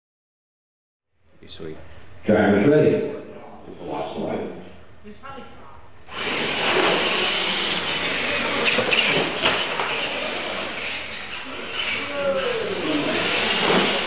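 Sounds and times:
falling motor whine: 0:06.1 - 0:14.0
toy trucks motors and tyres: 0:06.1 - 0:14.0.

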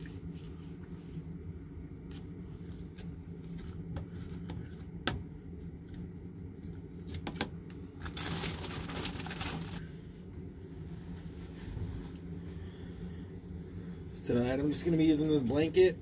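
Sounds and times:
steady low hum: 0:00.0 - 0:16.0
rustling: 0:08.0 - 0:09.9.

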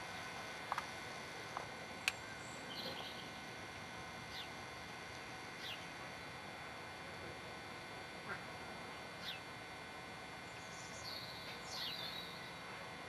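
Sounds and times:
faint bird chirps: 0:02.3 - 0:03.4, 0:04.3 - 0:04.6, 0:05.6 - 0:06.0, 0:09.2 - 0:09.5, 0:10.5 - 0:12.8.

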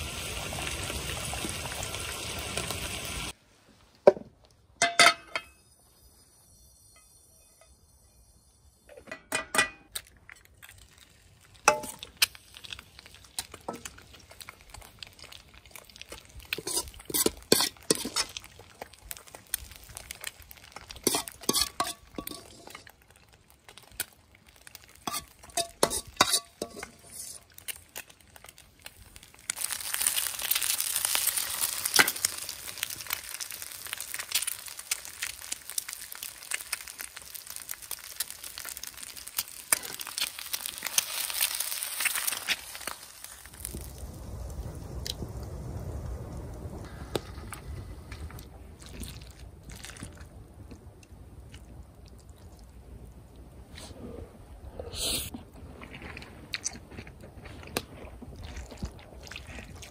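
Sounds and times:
sizzle of frying oil: 0:00.0 - 0:03.4, 0:08.3 - 0:47.4
utensil scraping frying pan: 0:16.6 - 0:18.5, 0:20.9 - 0:22.9, 0:25.0 - 0:27.5.

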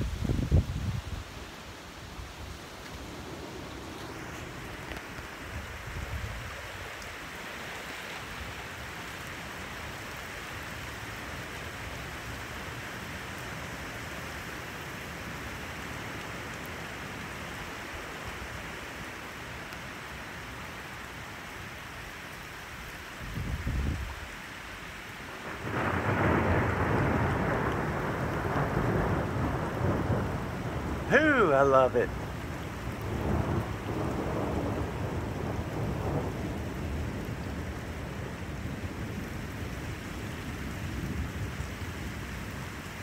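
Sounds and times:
steady rain: 0:00.0 - 0:43.0
thunder rumbling: 0:25.4 - 0:42.6.

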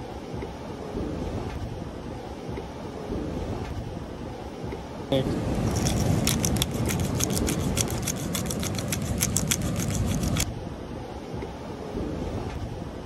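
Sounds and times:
wind: 0:00.0 - 0:13.0
plastic bag crinkling: 0:05.6 - 0:10.4.

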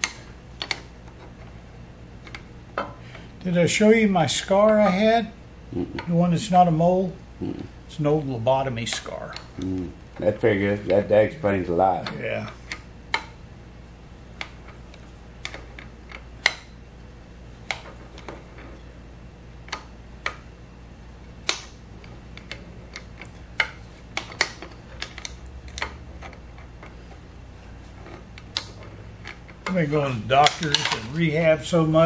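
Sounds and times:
low electrical hum: 0:00.0 - 0:32.0.

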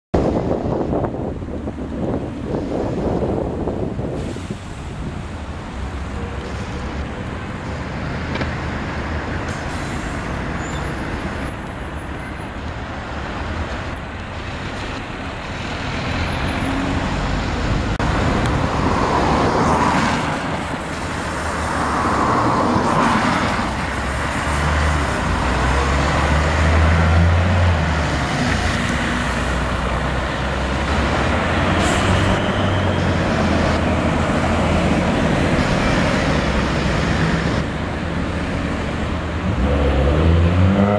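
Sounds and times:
vehicle engines rumbling: 0:00.2 - 0:40.9
tyres hissing on wet asphalt: 0:03.8 - 0:07.7, 0:09.4 - 0:10.9.

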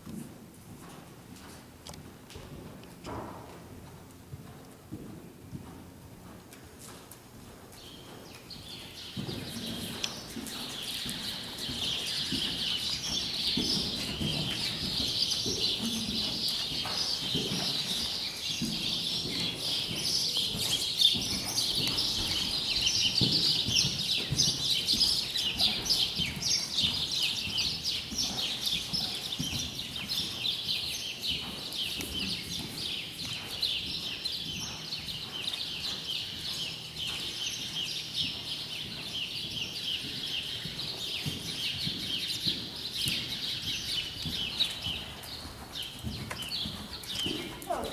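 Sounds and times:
horse hoofbeats: 0:00.0 - 0:47.9
many small birds chirping: 0:07.8 - 0:47.9.

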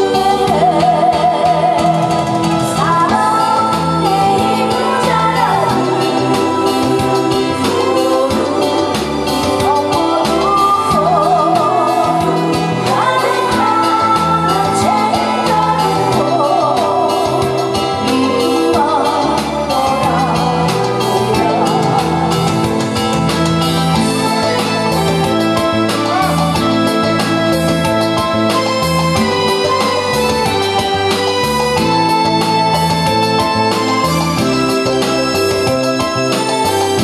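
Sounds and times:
woman singing into a microphone: 0:00.0 - 0:25.1
electronic keyboard accompaniment: 0:00.0 - 0:37.0.

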